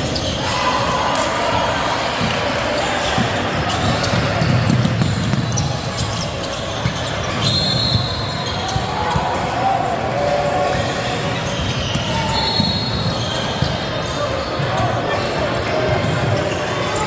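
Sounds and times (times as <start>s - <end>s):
high shoe squeal: 0.0s - 1.4s, 2.7s - 9.5s, 10.4s - 17.0s
chatter of voices: 0.0s - 4.7s, 8.4s - 17.0s
basketball bouncing on hardwood: 3.9s - 5.7s.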